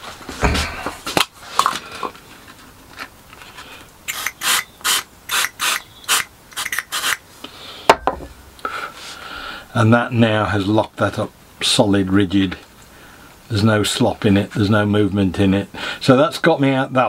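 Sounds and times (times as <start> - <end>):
spray puffs: 4.1 - 7.2.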